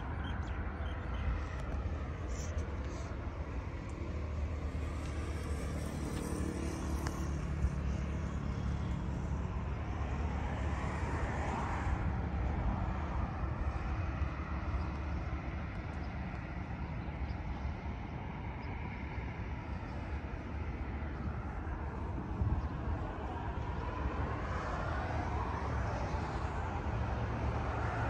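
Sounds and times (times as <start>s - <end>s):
road traffic rumble: 0.0s - 28.0s
vehicle passing: 1.2s - 14.6s.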